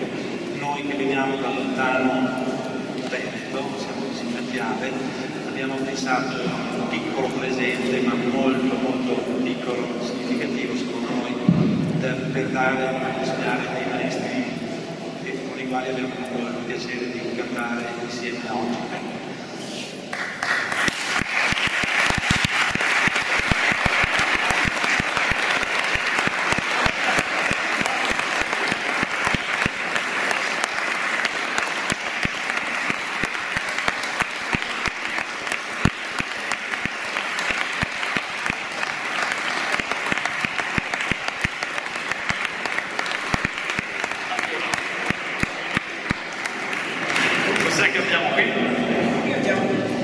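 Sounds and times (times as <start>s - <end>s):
crowd applauding: 20.1s - 48.2s.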